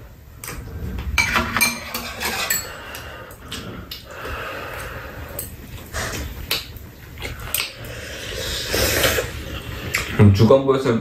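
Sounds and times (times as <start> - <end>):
spoons clinking on ceramic bowls: 1.2 - 3.0
eating noises: 2.9 - 10.2.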